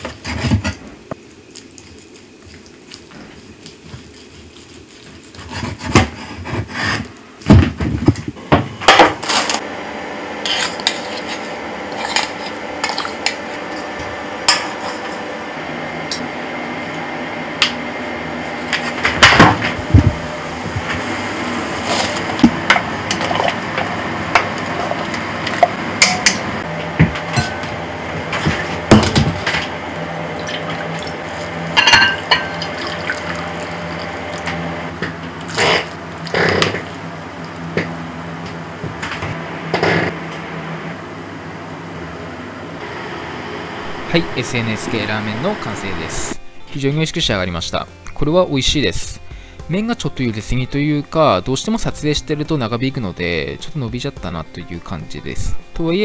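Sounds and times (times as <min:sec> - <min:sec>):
dishes and utensils clattering: 0:21.9 - 0:26.4, 0:27.0 - 0:29.7, 0:30.4 - 0:33.5.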